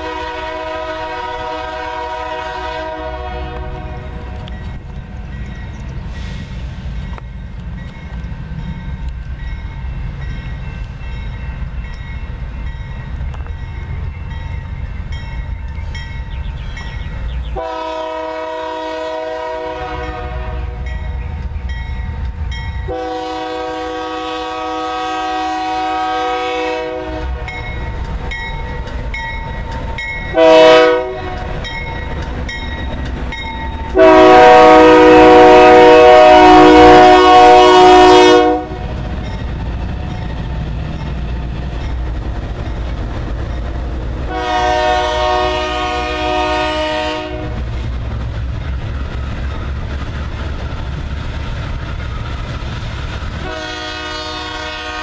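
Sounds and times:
locomotive air horn blasts: 0.0s - 4.4s, 17.6s - 20.9s, 22.9s - 27.6s, 30.3s - 31.5s, 34.0s - 38.9s, 44.3s - 47.6s, 53.4s - 55.0s
locomotive engine rumbling: 0.0s - 55.0s.

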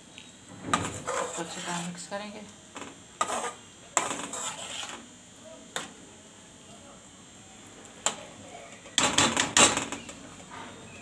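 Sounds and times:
soft stirring of thick food: 0.1s - 9.0s
metal spatula scraping pot: 0.7s - 2.1s, 3.2s - 5.1s.

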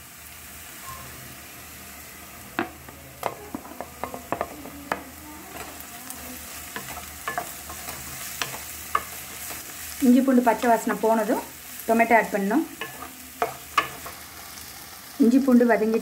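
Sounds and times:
onions sizzling in oil: 0.0s - 16.0s
wooden spatula knocking and scraping: 2.6s - 5.8s, 6.7s - 9.8s, 12.8s - 14.2s.

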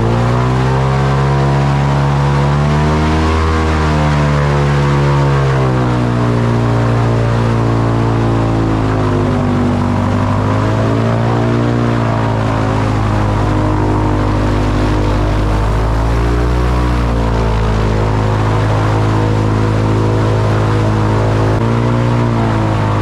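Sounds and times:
airboat engine and propeller: 0.0s - 23.0s.

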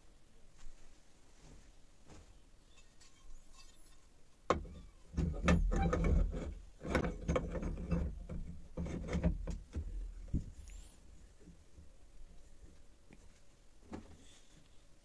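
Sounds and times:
metal clattering and scraping: 5.1s - 9.6s.

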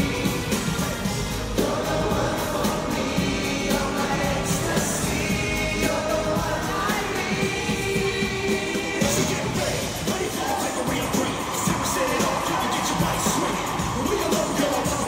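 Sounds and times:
amplified pop backing track: 0.0s - 15.0s
male vocal group singing: 0.0s - 15.0s.

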